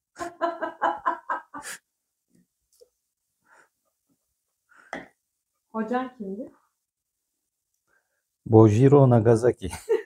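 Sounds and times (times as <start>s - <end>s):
woman laughing: 0.2s - 1.8s, 9.7s - 10.0s.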